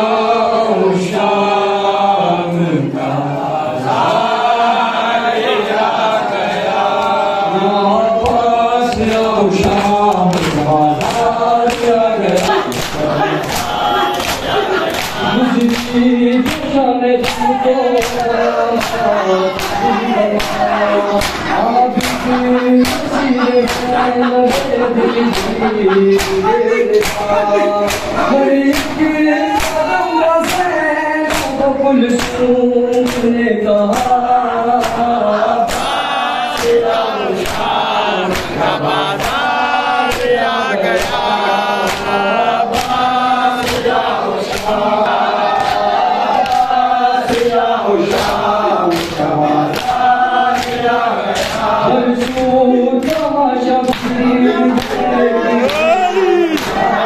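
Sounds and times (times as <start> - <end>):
men chanting in chorus: 0.0 - 57.0
hands slapping bare chests: 8.2 - 31.6, 32.2 - 33.3, 34.8 - 44.9, 45.5 - 54.2, 54.8 - 56.9.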